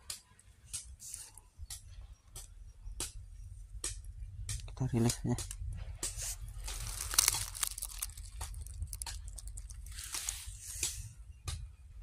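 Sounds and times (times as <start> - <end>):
sharp leaf crunch: 6.1 - 11.0
dry leaves rustling: 6.2 - 11.1.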